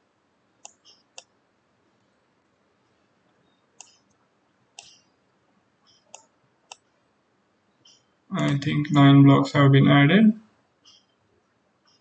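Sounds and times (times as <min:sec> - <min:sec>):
faint computer mouse clicks: 0:00.6 - 0:01.3, 0:03.8 - 0:04.2, 0:04.8 - 0:05.1.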